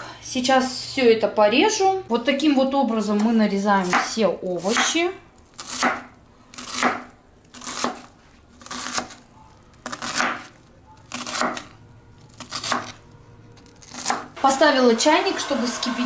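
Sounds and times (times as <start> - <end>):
knife slicing onion on wooden board: 3.8 - 5.0, 5.6 - 9.2, 9.8 - 10.5, 11.1 - 11.7, 12.3 - 13.0.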